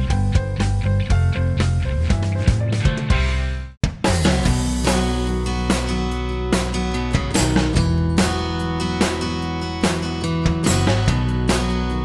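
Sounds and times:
acoustic guitar music: 0:04.1 - 0:12.0.

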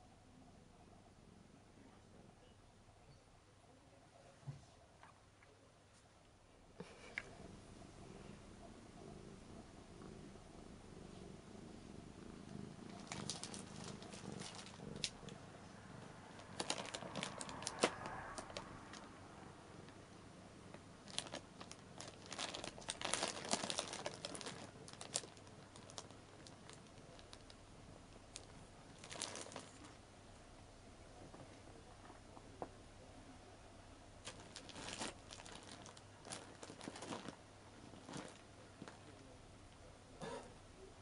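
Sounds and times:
cat purring: 0:06.7 - 0:41.0
plastic wrap crinkling: 0:12.5 - 0:15.3, 0:16.4 - 0:19.1, 0:21.0 - 0:27.6, 0:28.3 - 0:30.0, 0:34.2 - 0:39.2.

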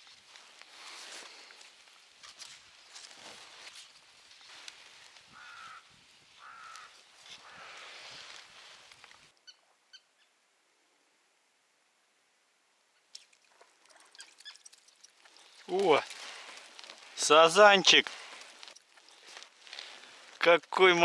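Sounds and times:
crow cawing: 0:05.3 - 0:08.0
small birds chirping: 0:13.0 - 0:20.4.

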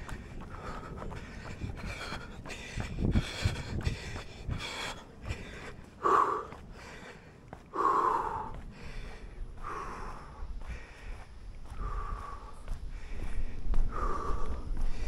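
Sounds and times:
light footsteps: 0:00.0 - 0:15.0
person breathing heavily: 0:00.0 - 0:15.0.

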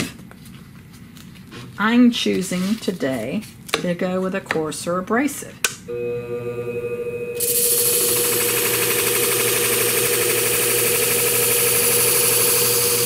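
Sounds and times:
sharpening machine motor hum: 0:05.9 - 0:13.0
blade grinding on abrasive disc: 0:07.4 - 0:13.0.

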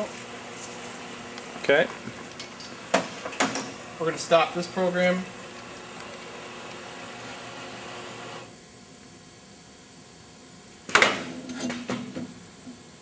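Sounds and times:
dispenser machine running: 0:00.0 - 0:08.5.

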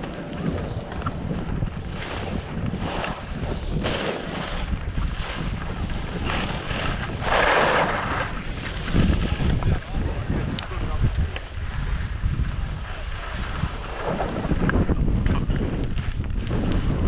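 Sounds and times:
skis scraping on packed snow: 0:00.0 - 0:14.6
wind buffeting microphone: 0:00.0 - 0:17.0.

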